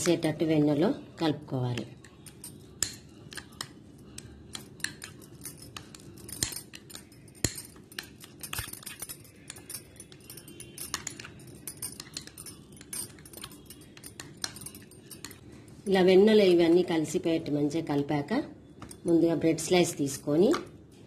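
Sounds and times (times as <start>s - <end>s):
spoon scraping glass bowl: 4.6s - 15.4s.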